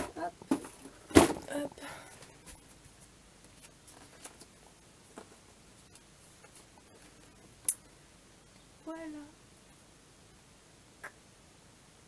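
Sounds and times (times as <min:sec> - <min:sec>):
faint clicks and rustles: 0:00.0 - 0:08.7.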